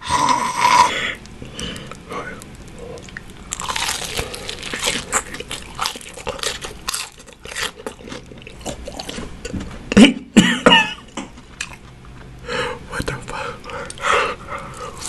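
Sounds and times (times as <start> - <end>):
chewing crispy fried chicken: 1.2 - 9.5.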